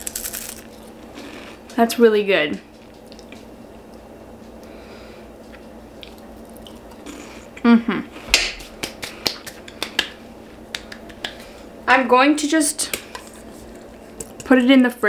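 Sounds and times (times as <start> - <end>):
person chewing: 3.0 - 4.8, 5.5 - 10.0
person humming: 7.6 - 8.2.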